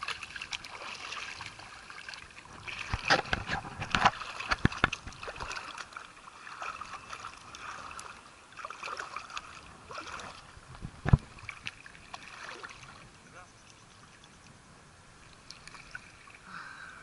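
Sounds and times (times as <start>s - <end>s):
seawater sloshing and splashing: 0.0s - 14.4s, 15.2s - 16.4s.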